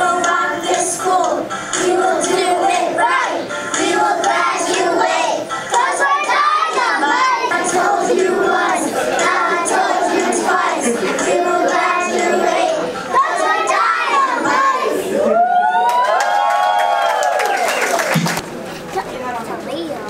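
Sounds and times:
children singing together: 0:00.0 - 0:15.3.

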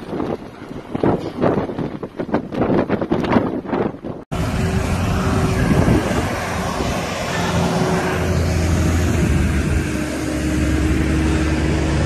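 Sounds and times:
steady wind hiss: 0:00.0 - 0:11.7
wind buffeting microphone: 0:00.0 - 0:12.0
vehicle engines idling: 0:04.3 - 0:12.0.

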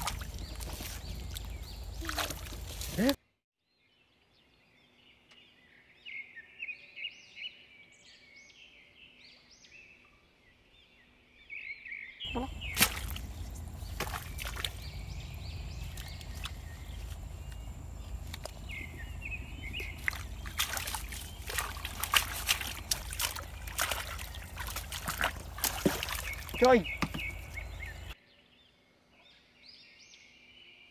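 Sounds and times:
hands splashing in muddy water: 0:00.0 - 0:03.2, 0:12.3 - 0:28.1
small birds chirping: 0:00.0 - 0:03.2, 0:04.4 - 0:30.9
wind rumbling on microphone: 0:12.5 - 0:28.1.

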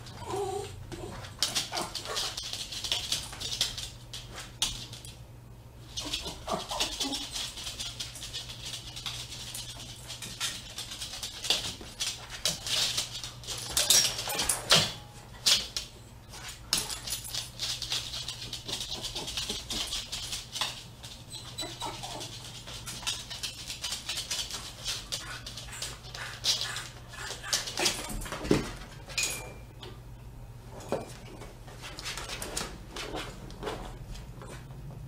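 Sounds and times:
small dog whining: 0:21.3 - 0:22.4.

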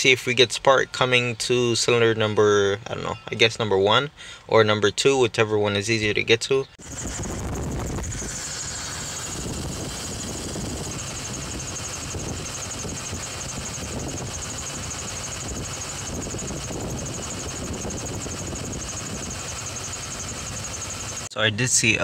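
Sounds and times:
misfiring engine running: 0:06.8 - 0:22.0.

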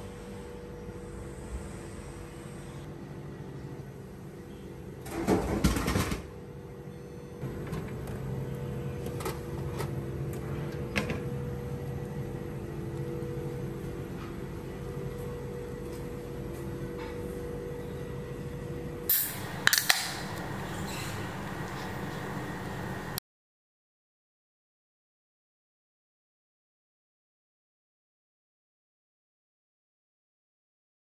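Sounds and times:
machine humming: 0:19.1 - 0:23.2
vending machine releasing can: 0:19.1 - 0:23.2.

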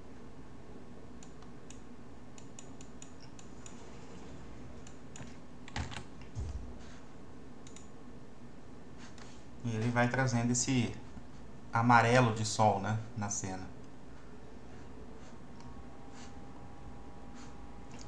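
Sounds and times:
low hum: 0:00.0 - 0:18.0
mouse clicks: 0:07.6 - 0:07.9.

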